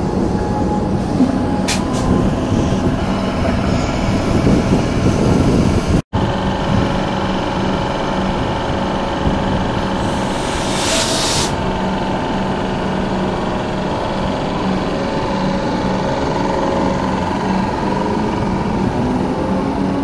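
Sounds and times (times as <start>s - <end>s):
electric train hum and whine: 0.0s - 20.0s
short hiss: 10.0s - 11.6s.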